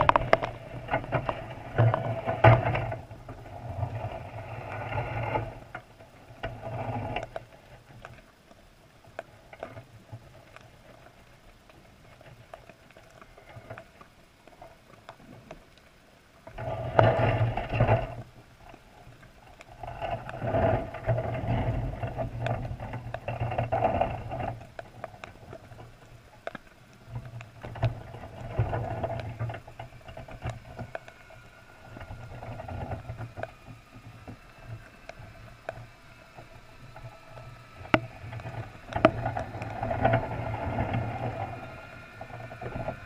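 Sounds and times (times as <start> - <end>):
underwater clicks and knocks: 0.0 - 43.0.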